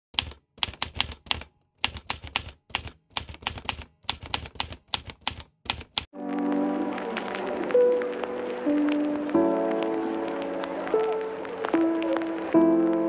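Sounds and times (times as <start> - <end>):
keyboard typing clicks: 0.2 - 6.1.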